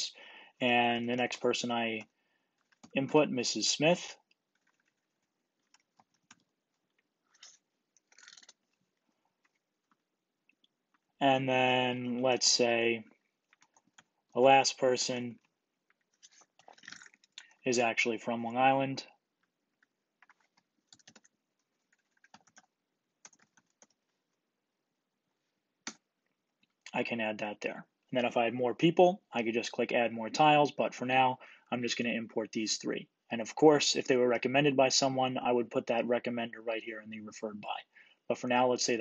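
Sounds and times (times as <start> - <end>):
faint keyboard typing: 1.0 - 11.2, 13.0 - 17.6, 19.0 - 24.5, 25.8 - 27.0
typing on keyboard: 4.2 - 8.8, 13.5 - 14.2, 19.7 - 24.2.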